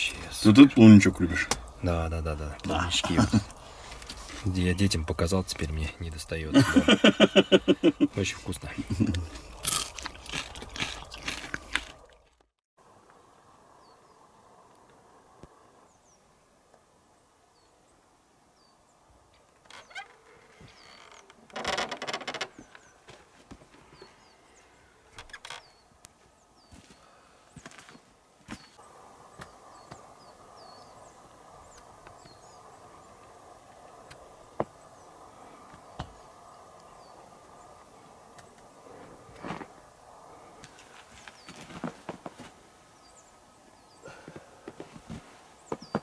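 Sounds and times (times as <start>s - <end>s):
background hiss: 0.0s - 9.7s.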